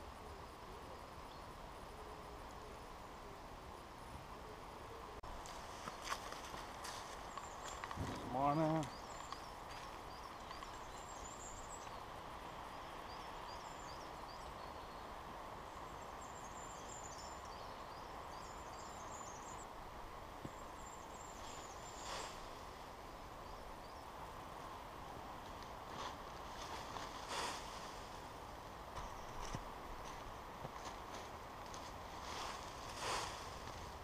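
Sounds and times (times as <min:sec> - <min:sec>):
steady woodland background rush: 0:00.0 - 0:34.0
soft rustle: 0:05.2 - 0:11.9, 0:20.5 - 0:22.9, 0:25.4 - 0:34.0
small bird chirping: 0:05.8 - 0:12.1.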